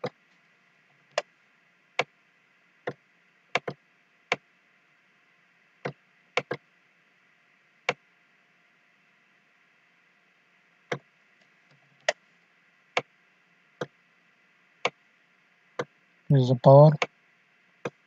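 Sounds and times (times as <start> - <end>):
faint room hum: 0.0 - 18.0
computer mouse clicking: 3.5 - 4.4, 5.8 - 6.6.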